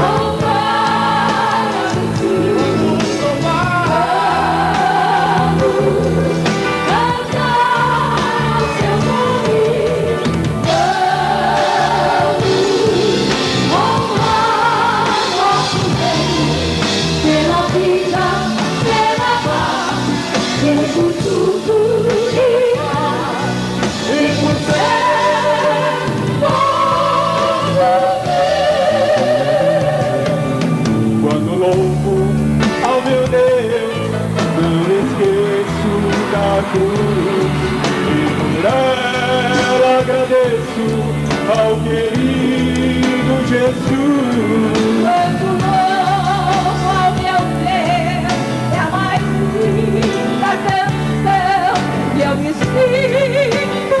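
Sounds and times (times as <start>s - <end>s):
person singing with vibrato: 0.0s - 30.6s
band playing praise song: 0.0s - 54.0s.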